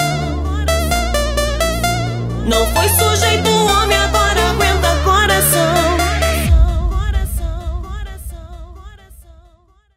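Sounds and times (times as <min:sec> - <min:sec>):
electronic dance music: 0:00.0 - 0:09.3.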